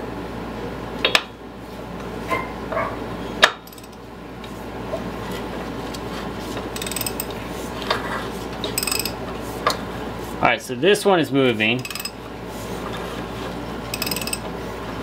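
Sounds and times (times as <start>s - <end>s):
hand tool metal clicks: 11.8s - 12.1s, 14.0s - 14.4s.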